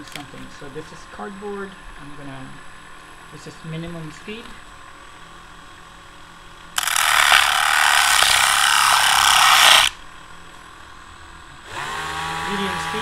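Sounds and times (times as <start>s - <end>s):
rotary tool grinding cardboard: 6.8s - 10.0s, 11.9s - 13.0s.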